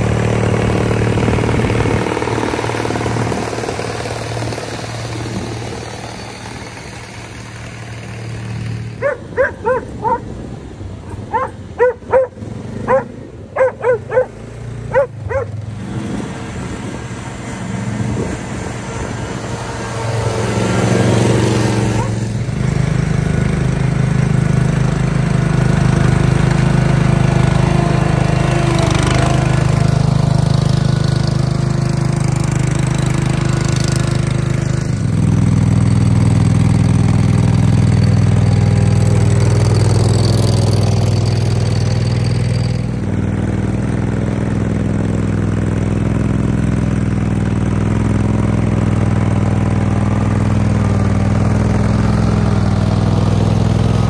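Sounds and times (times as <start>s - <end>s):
riding mower engines: 0.0s - 54.0s
dog barking: 9.0s - 10.3s, 11.0s - 15.6s, 22.0s - 22.2s.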